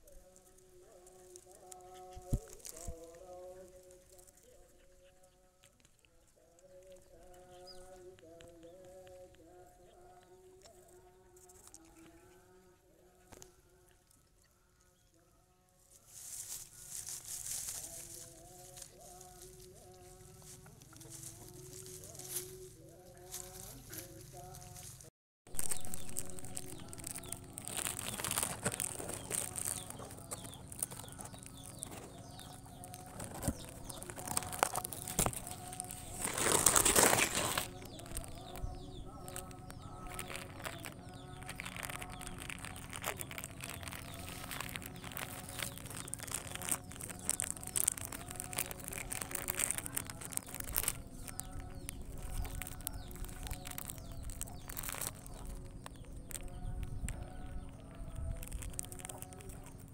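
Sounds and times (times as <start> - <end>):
plastic wrapper crinkling: 1.1 - 4.3, 16.2 - 19.7, 23.3 - 59.9.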